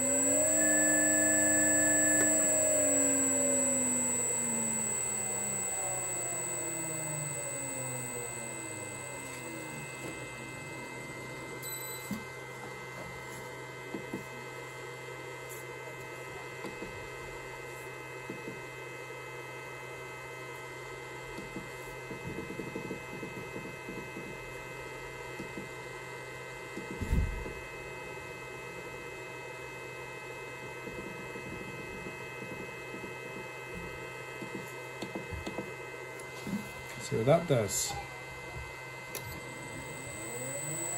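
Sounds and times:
steady electrical hum: 0.0s - 12.0s, 39.2s - 40.9s.

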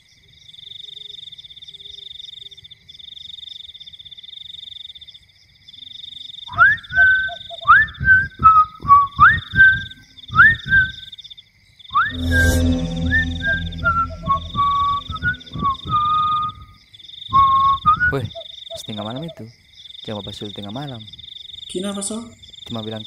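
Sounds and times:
loud musical hit: 12.1s - 16.1s
pulsing night chorus: 12.1s - 16.5s.

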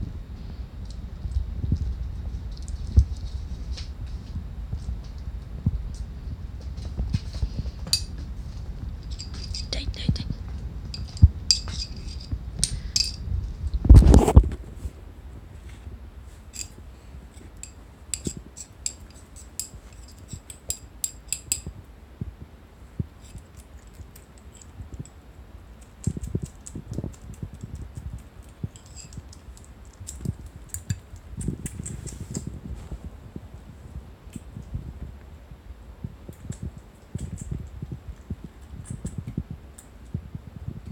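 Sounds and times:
metal spoon clinking ceramic bowl: 7.9s - 8.1s, 9.1s - 9.7s, 11.0s - 13.2s.

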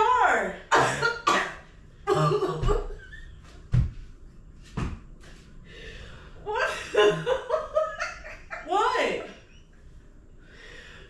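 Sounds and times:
dull thuds of blows on body: 3.7s - 4.0s, 4.7s - 5.1s.

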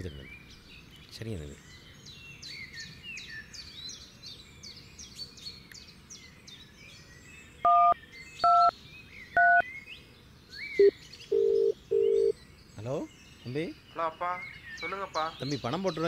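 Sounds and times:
small birds chirping: 0.0s - 16.0s
phone keypad dialling tones: 7.7s - 8.7s, 9.4s - 9.6s, 10.8s - 12.3s.

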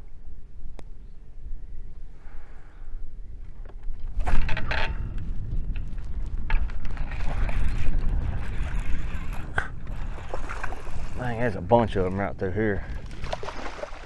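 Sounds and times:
wind rumbling on microphone: 0.0s - 14.0s
water lapping at boat hull: 7.1s - 11.3s, 13.0s - 14.0s.

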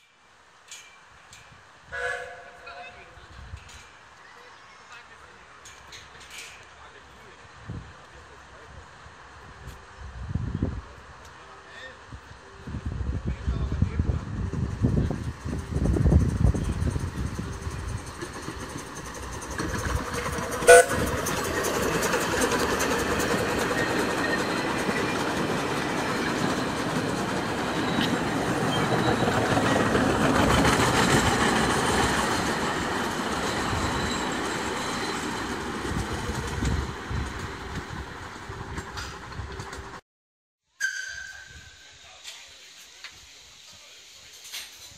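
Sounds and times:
steam locomotive whistle toot: 1.9s - 3.1s, 20.3s - 21.4s
train wheels clattering on rails: 3.4s - 4.2s, 5.4s - 7.0s, 14.4s - 40.0s.

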